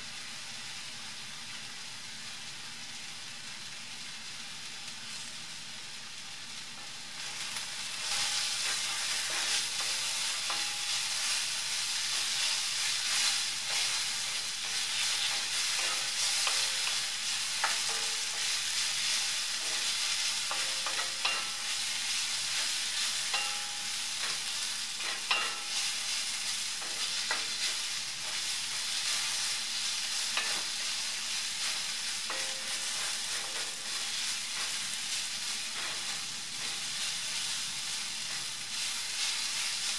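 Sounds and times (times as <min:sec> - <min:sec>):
onions sizzling in a pan: 0:00.0 - 0:39.9
spatula scraping and knocking pan: 0:08.0 - 0:37.5.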